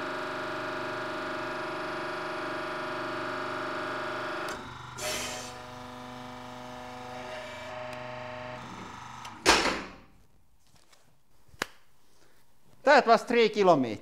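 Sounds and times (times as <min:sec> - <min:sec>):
pressure release hiss: 0:05.0 - 0:05.6.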